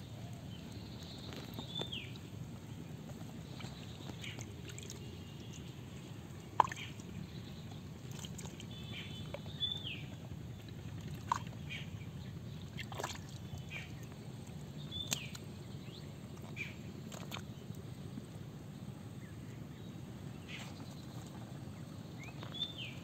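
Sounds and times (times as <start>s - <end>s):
hands sloshing in muddy water: 3.2s - 9.7s, 10.5s - 11.9s, 12.6s - 14.1s
short splashes: 3.4s - 7.2s, 8.0s - 9.6s, 10.9s - 11.8s, 12.6s - 14.0s.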